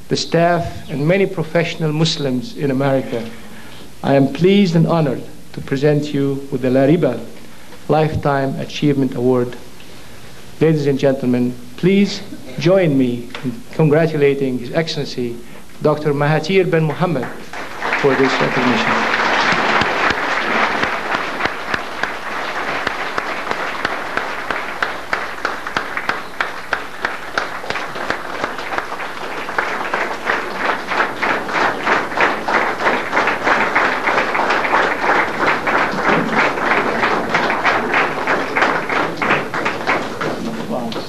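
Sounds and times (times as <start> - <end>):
rhythmic clapping: 16.8 - 41.0
audience applauding: 17.0 - 41.0.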